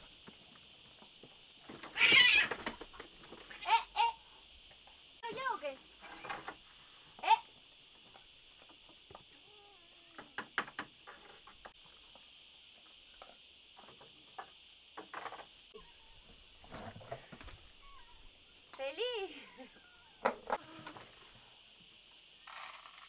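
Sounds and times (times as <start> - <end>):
cats meowing: 2.0 - 2.7.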